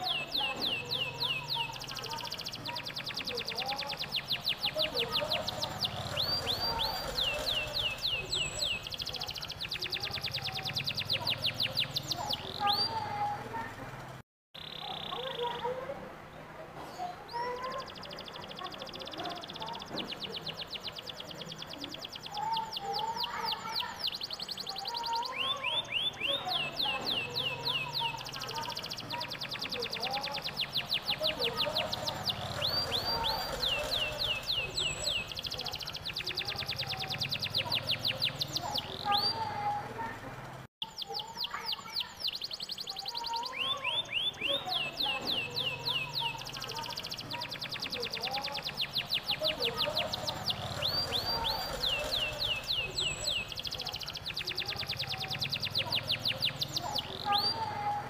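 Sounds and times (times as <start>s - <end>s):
canary singing trills: 0.0s - 16.0s, 16.9s - 58.0s.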